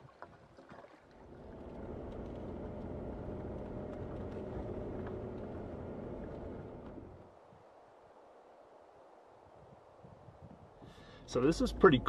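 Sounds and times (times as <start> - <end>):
tyre and road noise: 1.2 - 7.3
car engine running: 1.3 - 7.3, 11.3 - 12.0.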